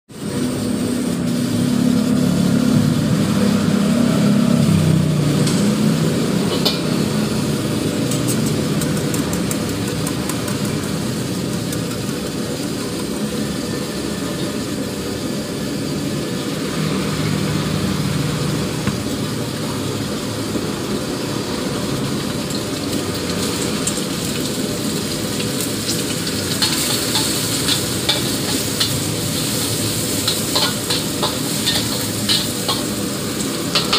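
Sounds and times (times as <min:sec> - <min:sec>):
gas burner rushing: 0:00.1 - 0:33.9
egg sizzling in hot oil: 0:00.3 - 0:33.9
metal spatula scraping wok: 0:25.6 - 0:33.9.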